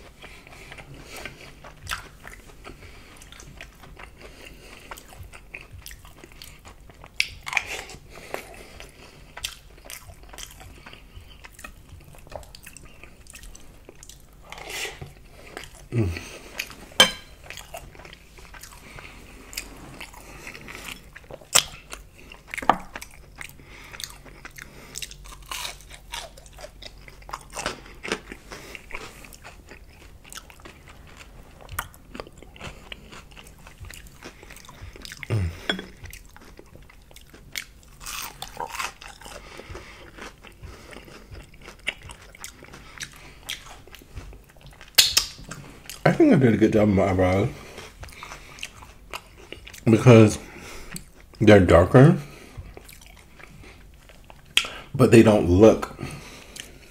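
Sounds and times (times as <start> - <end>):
crunchy chewing: 0.0 - 54.9
wet mouth clicks: 44.9 - 45.4.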